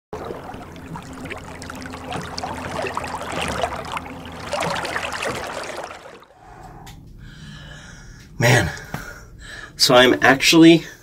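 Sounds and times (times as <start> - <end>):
water splashing and trickling: 0.1 - 6.4.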